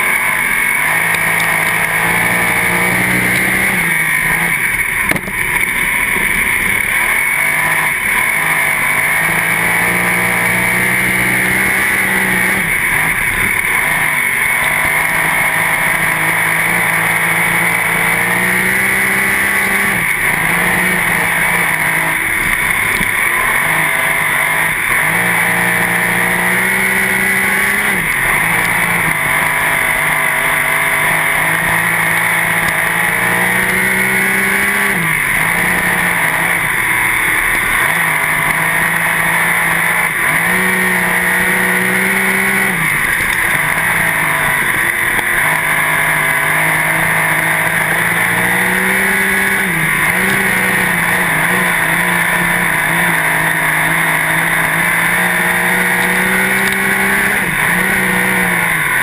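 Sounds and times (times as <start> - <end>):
race car engine running hard: 0.0 - 59.0.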